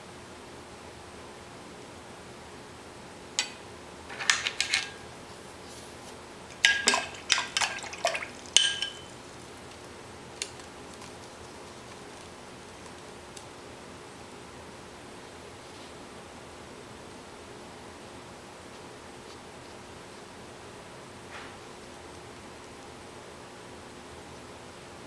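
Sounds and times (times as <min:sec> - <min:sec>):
paintbrush clinking on glass jar: 0:06.5 - 0:09.1.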